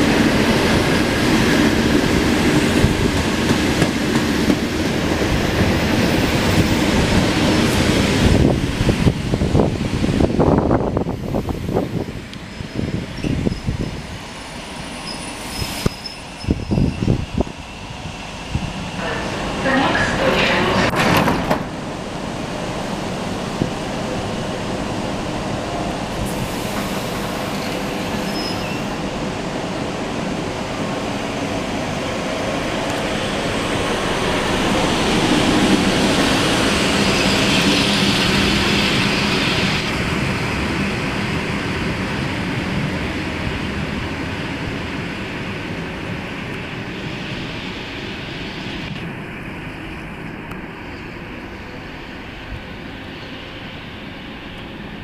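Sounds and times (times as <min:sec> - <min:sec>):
train doors clattering shut: 0:20.4 - 0:21.8.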